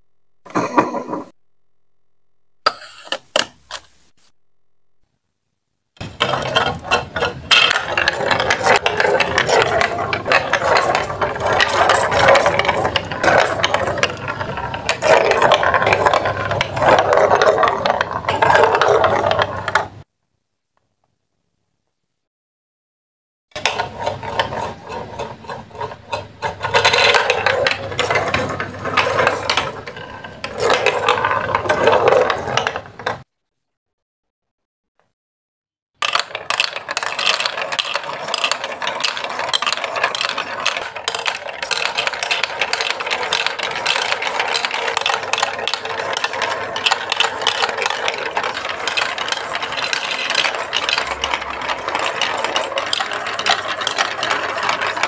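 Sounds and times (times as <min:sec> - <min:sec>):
plastic balls rattling down chutes: 0:06.0 - 0:20.1, 0:23.6 - 0:33.3, 0:36.0 - 0:55.0.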